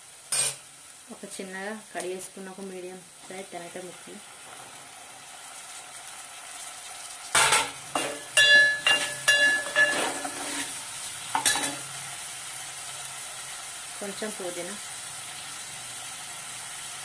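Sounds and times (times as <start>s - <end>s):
oil sizzling: 0.0s - 17.0s
ladle clinking on metal pan: 7.4s - 10.3s
ladle scraping pan: 7.5s - 10.8s.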